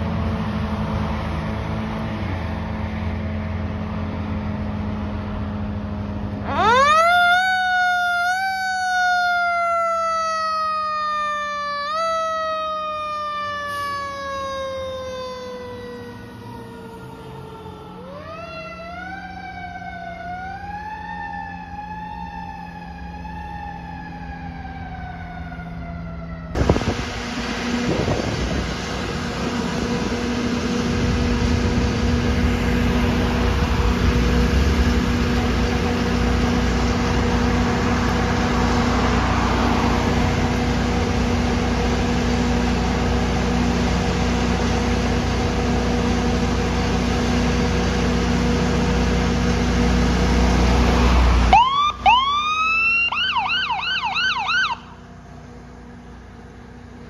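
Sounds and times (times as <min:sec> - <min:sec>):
diesel engine rumbling: 0:00.0 - 0:57.0
fire truck siren wailing: 0:00.0 - 0:57.0
electronic yelp siren: 0:06.4 - 0:27.0, 0:50.9 - 0:55.2.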